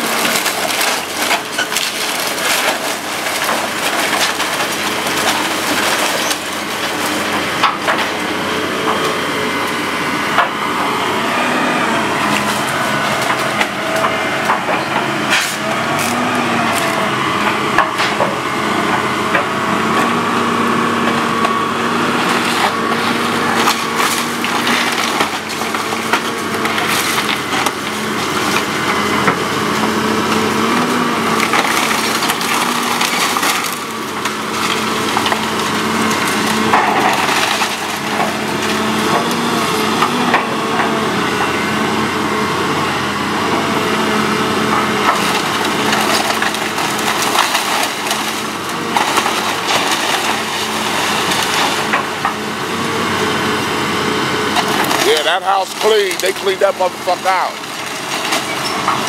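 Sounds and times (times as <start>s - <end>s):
debris crashing down: 0.0s - 10.6s, 21.2s - 41.5s, 44.7s - 52.4s, 54.5s - 59.0s
timber cracking and splintering: 0.0s - 41.6s, 44.6s - 59.0s
excavator engine drone: 0.0s - 59.0s.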